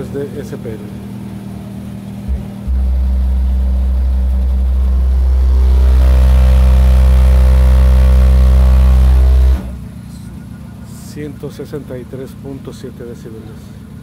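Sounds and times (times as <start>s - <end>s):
loud low bass tone: 0.9s - 11.0s.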